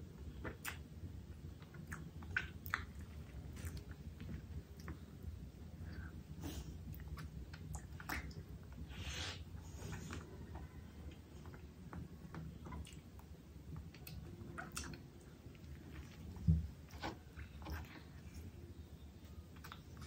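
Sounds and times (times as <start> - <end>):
person chewing: 1.5 - 5.1, 12.3 - 18.6.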